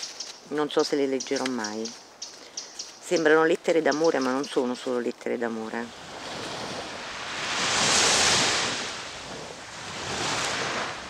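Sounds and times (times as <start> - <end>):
sea waves washing ashore: 5.6 - 11.0.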